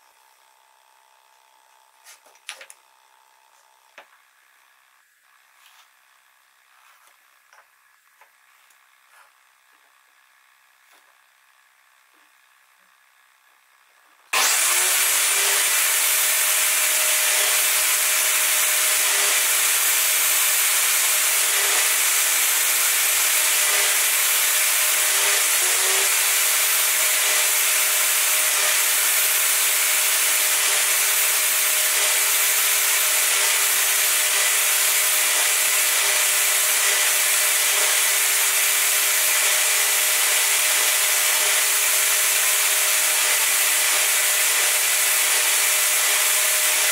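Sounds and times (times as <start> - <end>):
table saw cutting wood: 14.3 - 46.9.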